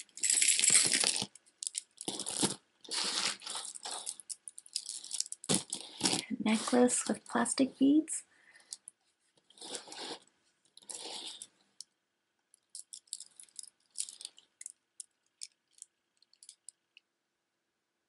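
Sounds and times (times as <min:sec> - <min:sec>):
plastic beads clicking and rattling: 0:00.0 - 0:07.1, 0:12.5 - 0:17.0
necklace rustling: 0:00.0 - 0:07.4, 0:08.6 - 0:11.6, 0:12.6 - 0:16.8.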